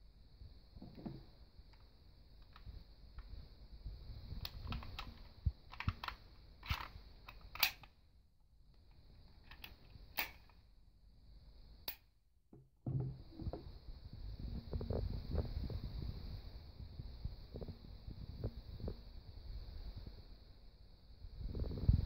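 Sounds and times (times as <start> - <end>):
pistol metal clicks and rattles: 4.4 - 8.0, 9.4 - 10.6.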